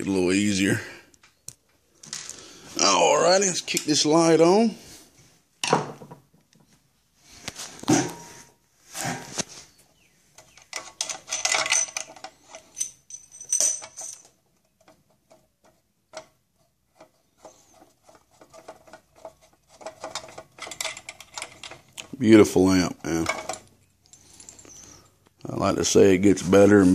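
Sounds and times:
metallic clicks and rattles: 0:10.4 - 0:16.4, 0:18.1 - 0:22.2.

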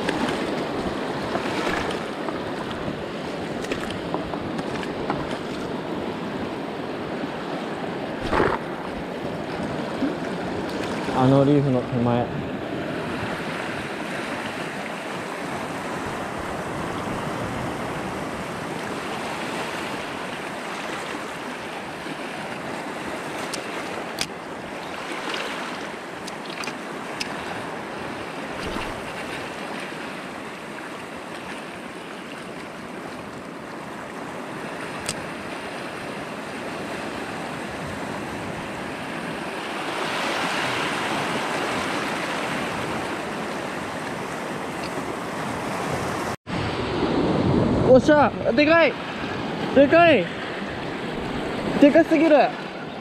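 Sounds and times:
surf washing over reef: 0:00.0 - 0:53.0.

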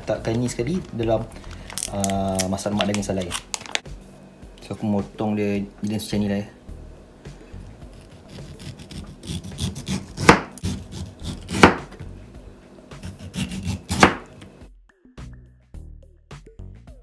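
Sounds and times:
knife cutting on board: 0:07.9 - 0:12.0, 0:13.0 - 0:14.5.

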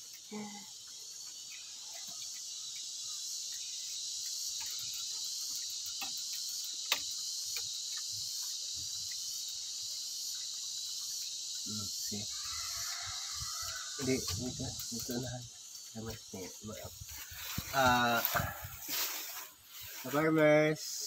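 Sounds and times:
insects trilling: 0:00.0 - 0:21.0
piglets eating feed on concrete: 0:01.0 - 0:17.0.

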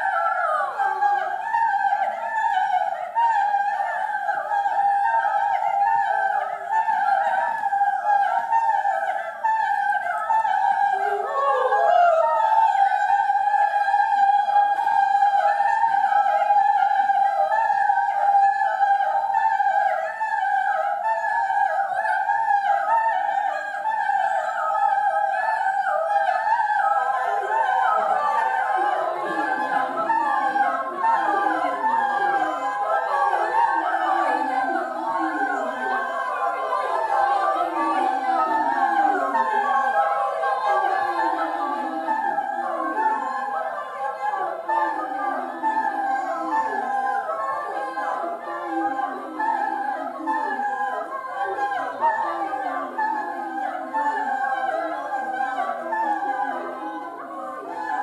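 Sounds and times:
choir singing a cappella: 0:00.0 - 0:58.0.

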